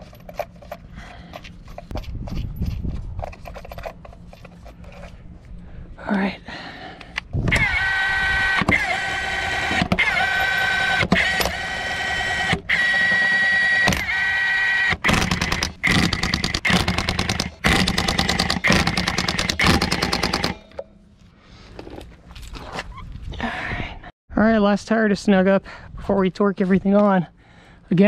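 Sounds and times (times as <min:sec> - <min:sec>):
impact wrench whine: 0:07.4 - 0:20.9
impact wrench hammering: 0:08.6 - 0:20.9.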